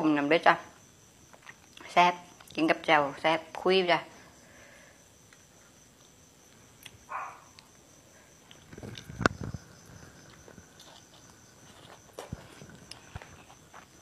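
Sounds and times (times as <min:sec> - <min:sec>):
crunch of vegetable being bitten: 0:08.4 - 0:14.0.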